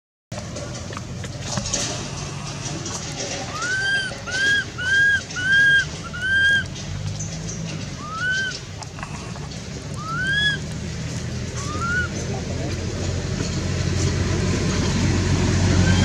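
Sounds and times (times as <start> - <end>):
baby monkey crying: 3.5 - 6.7, 8.0 - 8.6, 10.0 - 10.7, 11.6 - 12.2, 15.8 - 16.0.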